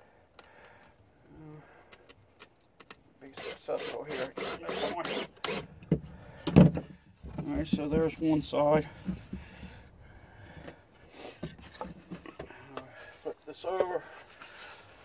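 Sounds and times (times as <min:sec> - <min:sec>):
cordless drill driving screw: 0:03.3 - 0:05.7.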